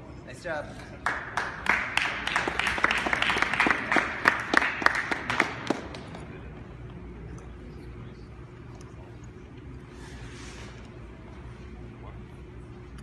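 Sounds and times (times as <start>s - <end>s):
large room hum: 0.0s - 13.0s
people clapping: 0.8s - 6.5s.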